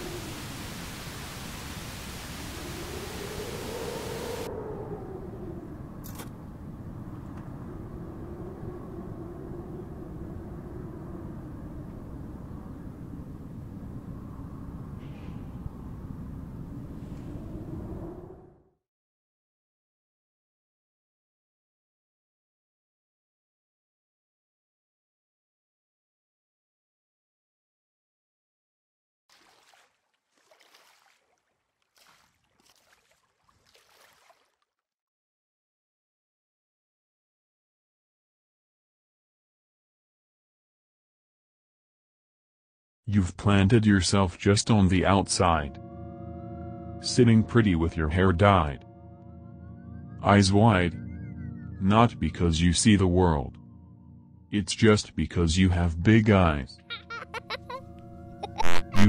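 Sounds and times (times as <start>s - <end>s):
footsteps wading through water: 29.3s - 34.8s.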